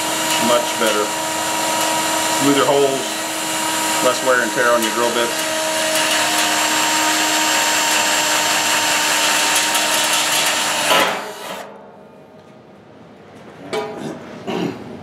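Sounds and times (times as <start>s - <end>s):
cordless drill boring through metal: 0.0s - 11.6s.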